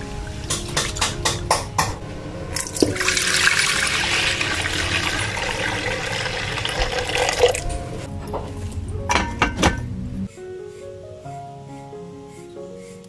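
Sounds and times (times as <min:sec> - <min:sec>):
water pouring into pot: 0:02.5 - 0:07.7.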